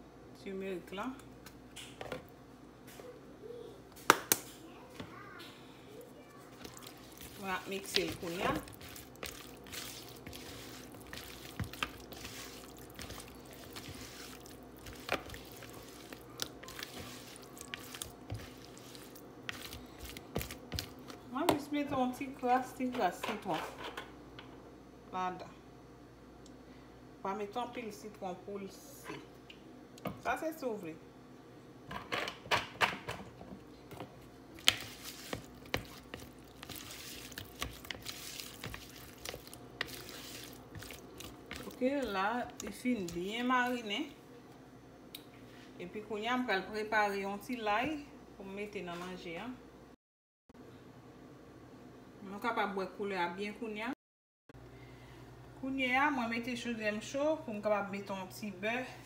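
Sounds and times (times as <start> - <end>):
spatula stirring wet shrimp: 6.4 - 21.7, 33.9 - 43.9.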